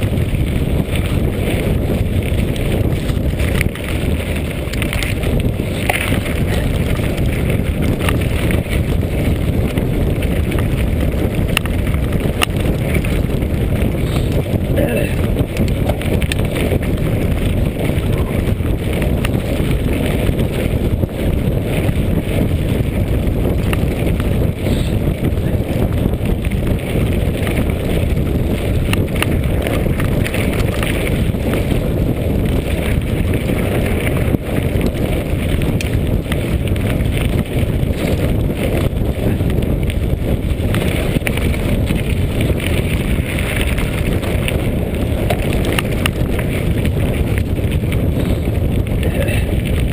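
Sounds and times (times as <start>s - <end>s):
tyres crunching on gravel: 0.0s - 22.7s
bike rattles and knocks: 0.0s - 49.9s
wind rumble on microphone: 0.0s - 49.9s.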